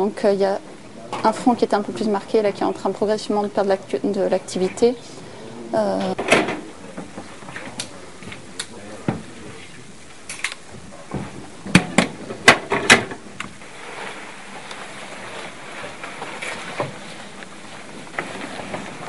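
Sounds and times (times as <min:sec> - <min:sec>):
steady hiss: 0:00.0 - 0:19.0.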